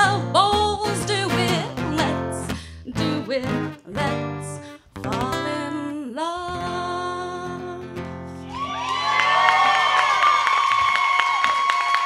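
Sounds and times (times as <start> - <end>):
strummed acoustic guitar: 0.0 - 5.9, 6.5 - 8.5
woman singing: 0.0 - 8.3
audience cheering: 8.4 - 12.0.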